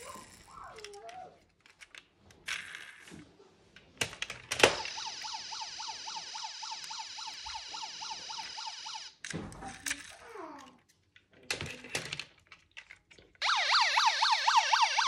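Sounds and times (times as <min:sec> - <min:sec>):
electronic siren yelp: 0:04.8 - 0:09.2, 0:13.4 - 0:15.0.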